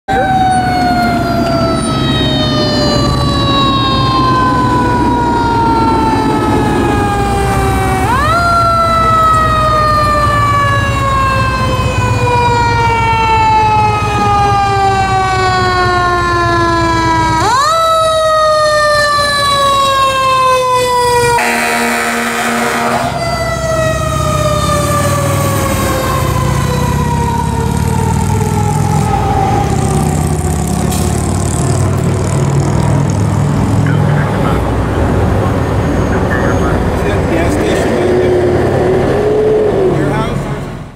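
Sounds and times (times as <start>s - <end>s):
mechanical siren wailing: 0.1s - 33.2s
horn blast: 21.3s - 23.2s
truck engine running: 21.4s - 40.9s.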